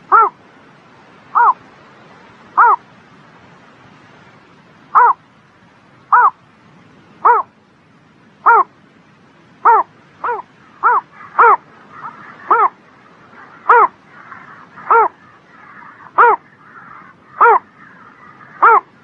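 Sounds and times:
bird calling: 0.0 - 0.4, 1.3 - 1.6, 2.6 - 2.8, 4.9 - 5.2, 6.1 - 6.4, 7.2 - 7.5, 8.4 - 8.7, 9.6 - 19.0
faint background bird calls: 0.0 - 19.0.

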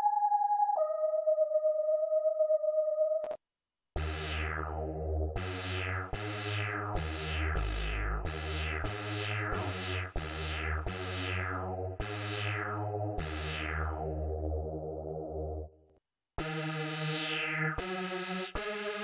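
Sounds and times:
synthesizer notes with deep bass: 4.0 - 15.7, 16.4 - 19.0.

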